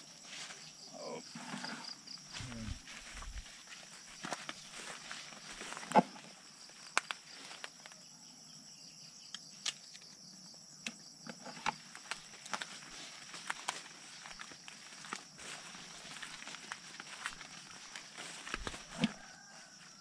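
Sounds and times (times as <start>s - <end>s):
sharp clicks and snaps: 9.3s - 10.1s.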